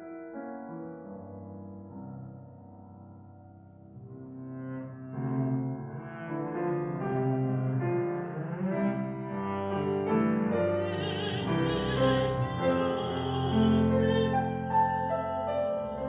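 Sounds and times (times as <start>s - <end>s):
piano: 0.0s - 16.0s
woman singing operatically: 10.8s - 14.6s.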